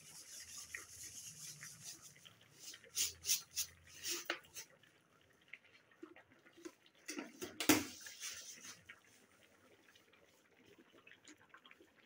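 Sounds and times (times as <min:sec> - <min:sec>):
sugar pouring into a pan: 0:00.0 - 0:04.7.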